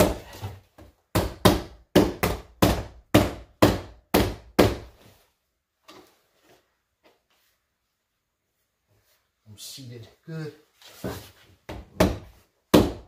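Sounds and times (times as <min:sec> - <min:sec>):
rubber mallet knocking on door trim: 0:01.1 - 0:04.9, 0:11.7 - 0:13.0.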